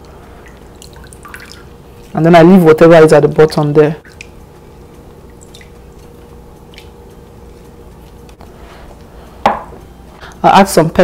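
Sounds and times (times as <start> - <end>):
water dripping: 0.0 - 2.2, 3.2 - 8.2
faint steady hum: 0.0 - 11.0.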